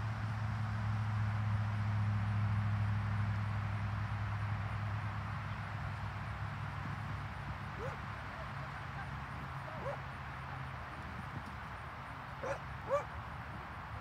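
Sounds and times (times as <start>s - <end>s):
dog yipping: 7.8s - 10.0s, 12.4s - 13.1s.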